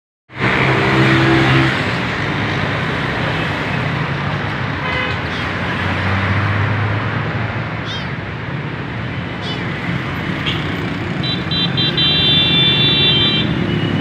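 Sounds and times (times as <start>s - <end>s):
road traffic passing: 0.3s - 14.0s
high-pitched tone: 0.5s - 1.9s.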